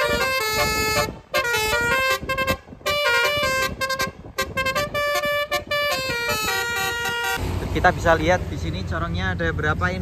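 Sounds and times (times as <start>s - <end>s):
musical car horn playing chords: 0.0s - 7.4s.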